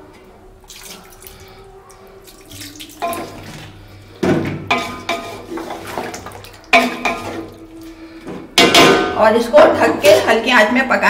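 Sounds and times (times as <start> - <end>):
water poured into pot: 0.7 - 4.0, 4.7 - 8.1
metal spoon stirring and knocking pot: 3.0 - 3.7, 4.3 - 7.8, 8.6 - 10.4.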